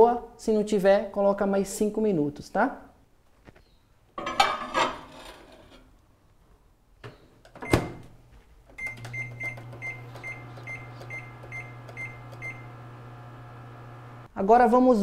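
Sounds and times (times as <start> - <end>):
plate clattering: 4.2 - 5.5
microwave humming: 8.8 - 14.3
microwave ticking: 8.8 - 14.3.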